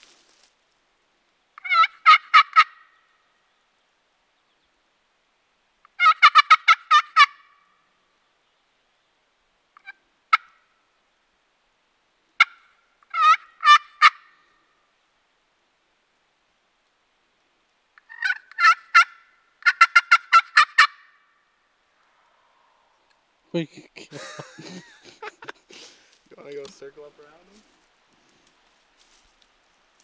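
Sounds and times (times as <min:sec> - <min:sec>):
turkey gobbling: 0:01.6 - 0:03.0, 0:05.9 - 0:07.6, 0:09.8 - 0:10.7, 0:12.4 - 0:14.5, 0:18.0 - 0:21.2, 0:24.0 - 0:26.1.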